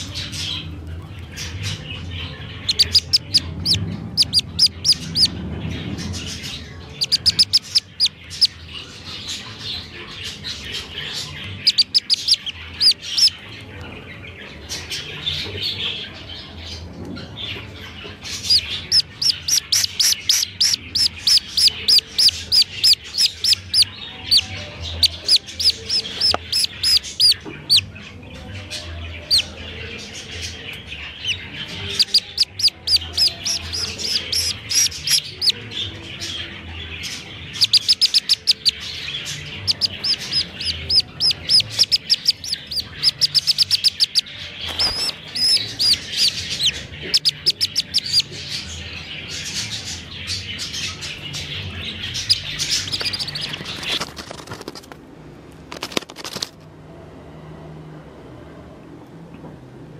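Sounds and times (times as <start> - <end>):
duckling high-pitched peeps: 0.0 - 5.4, 6.4 - 13.7, 18.0 - 27.9, 29.2 - 29.6, 30.8 - 54.5.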